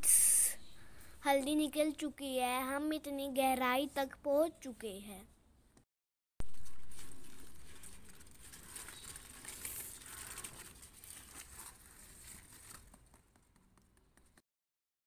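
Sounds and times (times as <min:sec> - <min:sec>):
dry soil crumbling and scraping: 0:06.4 - 0:13.1.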